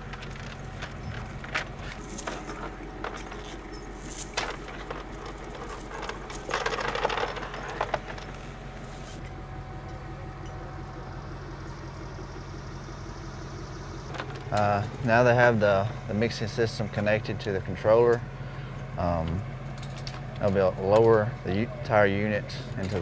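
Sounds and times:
metal parts clinking: 0.0s - 9.3s
low engine hum: 0.0s - 23.0s.

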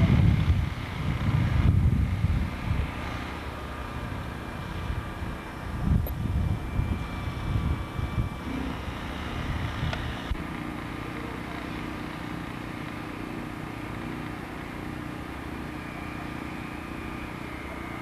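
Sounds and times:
wind buffeting microphone: 0.0s - 11.0s
low mechanical hum: 0.0s - 18.0s.

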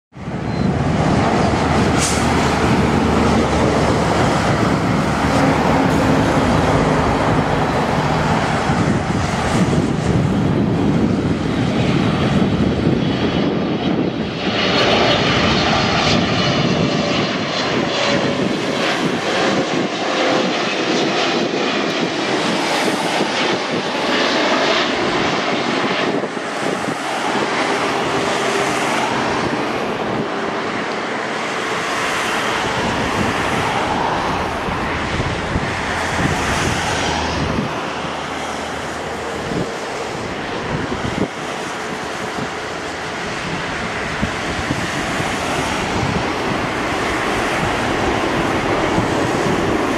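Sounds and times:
jet engine rush: 0.1s - 49.9s
jet fan whine: 0.2s - 49.9s.

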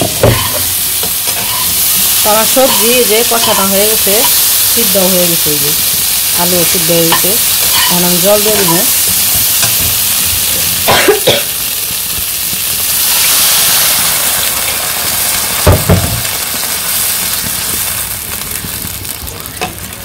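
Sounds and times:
metal spatula knocking pan: 0.0s - 1.7s
vegetables sizzling in a wok: 0.0s - 20.0s
water poured into hot pan hissing: 1.6s - 20.0s.

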